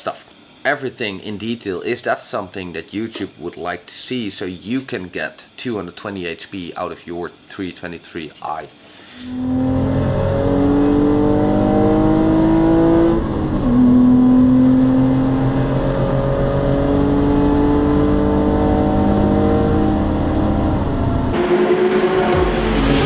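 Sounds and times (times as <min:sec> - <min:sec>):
car engine revving from inside cabin: 0:09.2 - 0:21.4.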